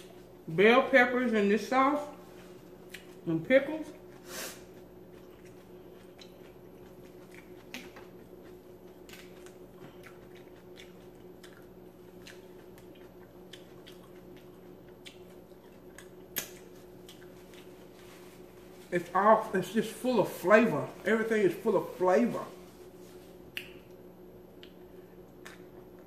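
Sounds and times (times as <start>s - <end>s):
steady low hum: 0.0s - 26.0s
chicken torn apart and chewed: 4.0s - 18.0s.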